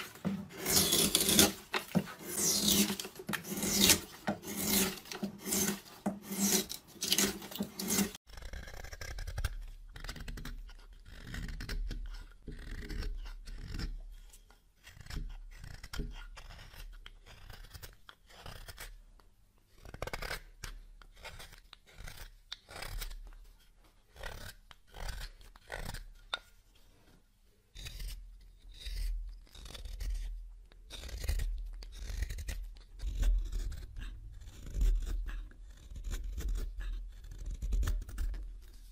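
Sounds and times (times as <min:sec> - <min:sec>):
gouge scraping wood: 0:00.0 - 0:18.9, 0:27.8 - 0:38.9.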